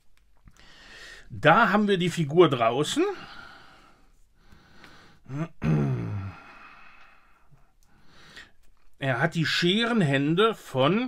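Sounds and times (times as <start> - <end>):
faint breathing: 0.5 - 1.3, 3.1 - 5.4, 6.0 - 8.7
man sighing: 4.7 - 7.4.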